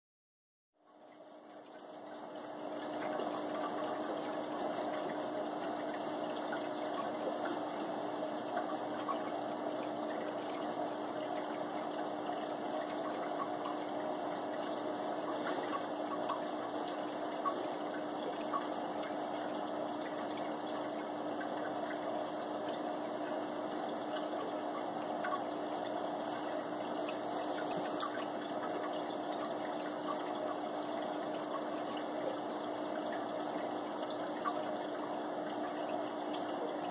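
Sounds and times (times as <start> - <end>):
low pump hum: 0.8 - 36.9
water drips: 0.8 - 36.9
water trickling and splashing: 0.8 - 36.9.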